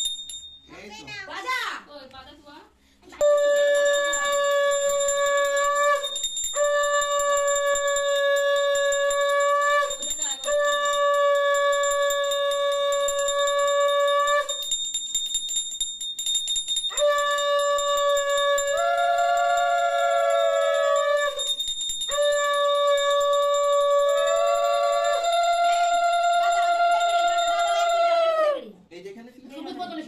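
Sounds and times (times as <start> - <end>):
conch shell blasts: 3.2 - 14.6, 16.9 - 28.2.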